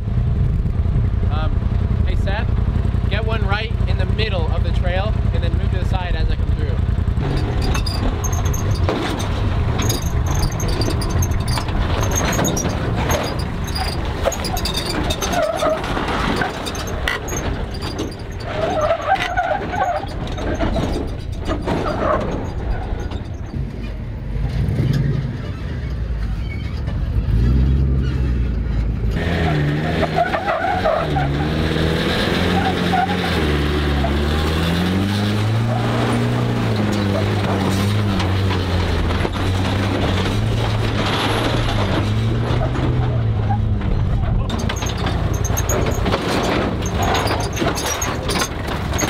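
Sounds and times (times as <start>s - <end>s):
truck engine under load: 0.0s - 49.0s
tyres scraping and knocking on rock: 7.4s - 22.4s.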